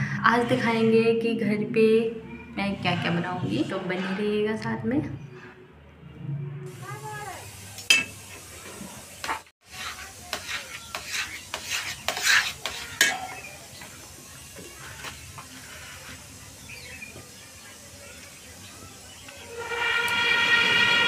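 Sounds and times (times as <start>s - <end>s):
milk simmering: 8.3s - 21.0s
metal spatula scraping iron pan: 9.2s - 13.5s, 19.5s - 21.0s.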